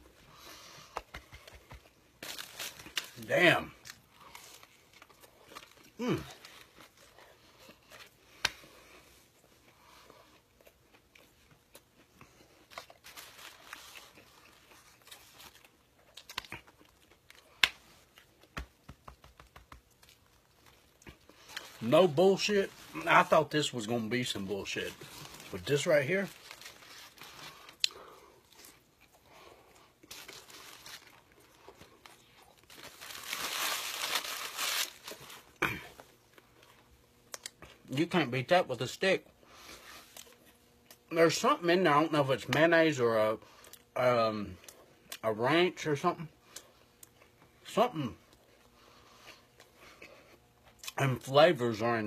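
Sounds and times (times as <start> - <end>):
chewing and crunching food: 0.0 - 38.0, 46.0 - 51.4
foil paper wrapper crinkling: 1.5 - 8.0, 12.6 - 16.5, 19.3 - 27.8, 30.0 - 35.6.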